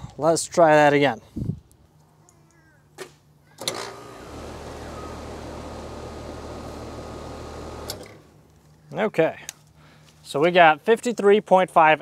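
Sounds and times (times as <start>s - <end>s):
compressor humming and whooshing: 3.6s - 8.3s.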